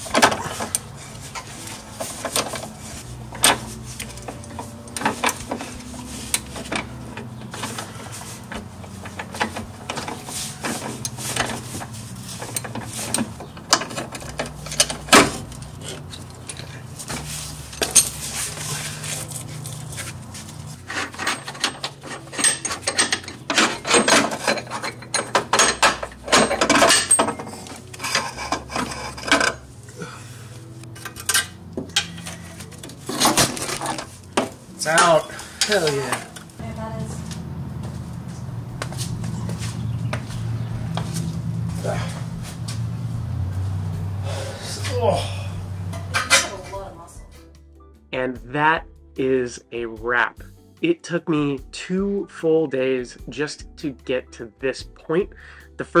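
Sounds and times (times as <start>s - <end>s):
metal tools clinking and clanking: 0.0s - 29.8s, 30.8s - 36.6s, 44.6s - 46.8s
low hum: 0.0s - 47.3s.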